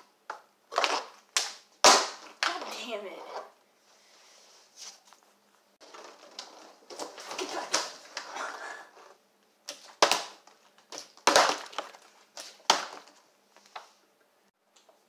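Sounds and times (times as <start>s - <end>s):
plastic bottle clattering on wooden floor: 5.8s - 8.3s, 9.7s - 13.2s.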